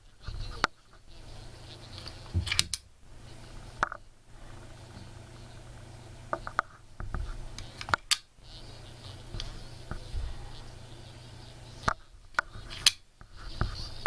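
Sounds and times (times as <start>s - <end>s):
faint steady low hum: 0.0s - 14.0s
magnet clicking on metal contacts: 1.9s - 2.9s, 7.5s - 8.3s, 11.8s - 13.0s.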